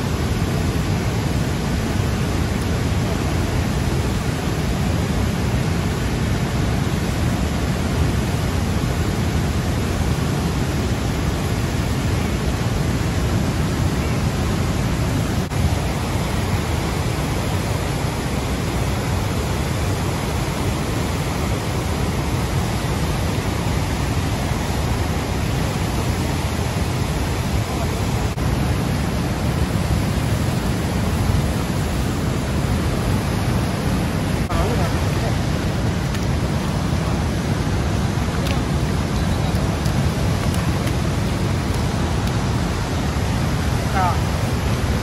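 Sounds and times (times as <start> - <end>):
river rushing through a dam: 0.0 - 45.0.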